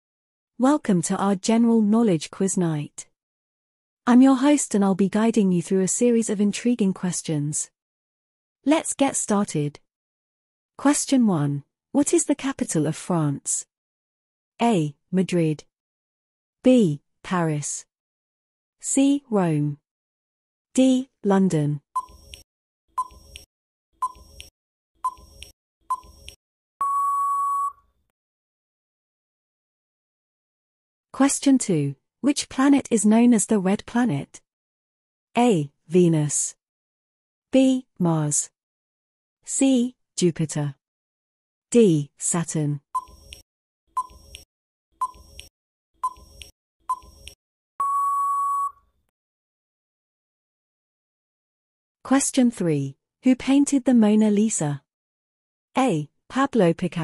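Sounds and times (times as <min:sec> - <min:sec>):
ticking timer beeps: 0:22.0 - 0:27.8, 0:43.0 - 0:44.4, 0:45.0 - 0:48.8
long steady beep: 0:26.8 - 0:27.8, 0:47.8 - 0:48.8
short timer beeps: 0:26.8 - 0:27.8, 0:45.0 - 0:45.2, 0:46.0 - 0:47.1, 0:47.8 - 0:48.8.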